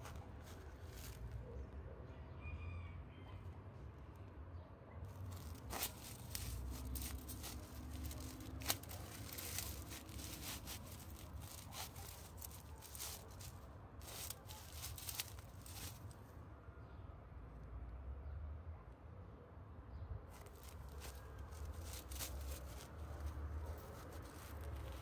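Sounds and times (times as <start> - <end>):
sock scraping on rough rock: 5.3 - 16.1, 20.4 - 25.0.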